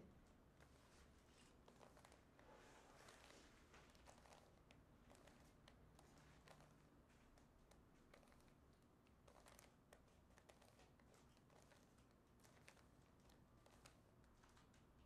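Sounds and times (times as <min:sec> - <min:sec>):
quiet room hiss: 0:00.0 - 0:15.0
puzzle cube plastic clicking: 0:09.2 - 0:14.7.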